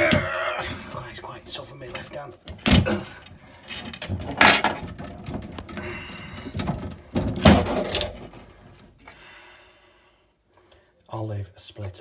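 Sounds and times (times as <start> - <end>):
metal clicks and crunches: 3.6 - 9.0.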